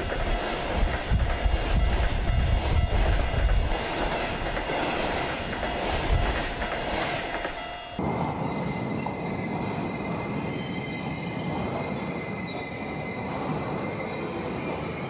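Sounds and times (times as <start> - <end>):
high wheel squeal: 7.6 - 15.0.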